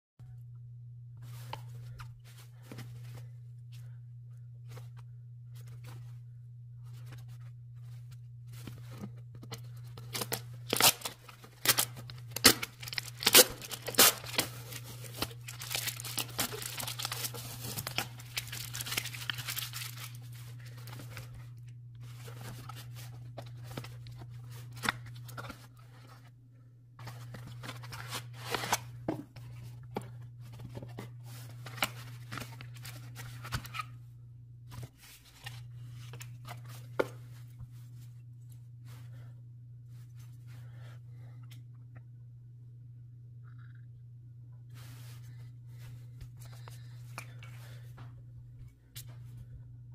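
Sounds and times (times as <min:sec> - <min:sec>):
steady low hum: 0:00.2 - 0:49.9
cardboard packaging rustling and clicking: 0:08.8 - 0:21.3
plastic wrap crackling and tearing: 0:10.0 - 0:20.4.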